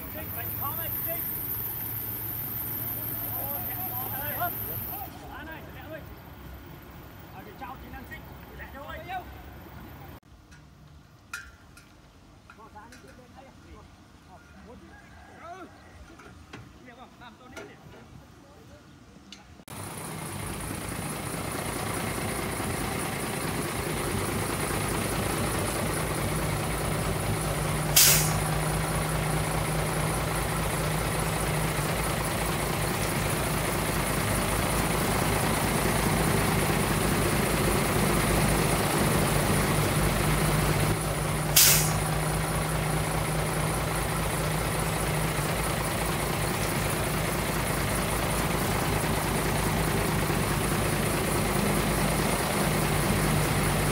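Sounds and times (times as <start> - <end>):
diesel truck engine running: 0.0 - 10.2, 19.7 - 53.9
air brake hisses: 27.8 - 28.6, 41.4 - 42.2.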